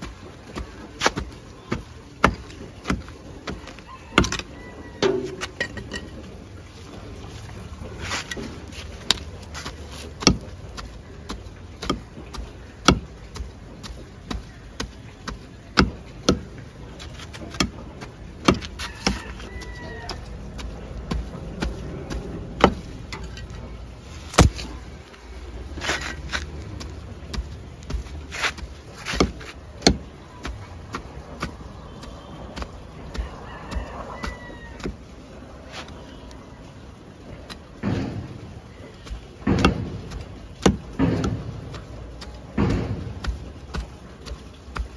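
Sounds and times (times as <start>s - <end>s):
trowel chopping into soil: 24.3s - 24.8s, 25.8s - 35.0s.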